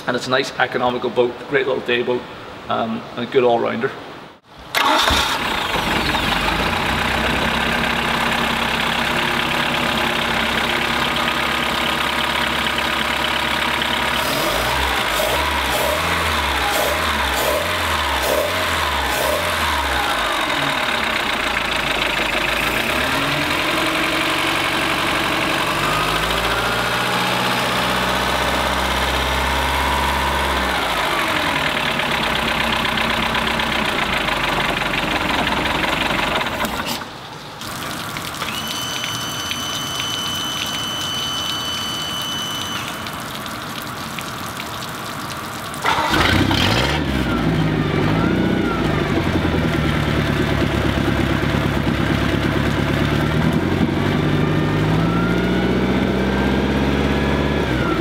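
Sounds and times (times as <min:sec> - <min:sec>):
boat engine revving and idling: 0:05.0 - 0:37.0, 0:45.8 - 0:58.0
water splashing: 0:37.6 - 0:46.8
steady high beep: 0:38.5 - 0:43.0.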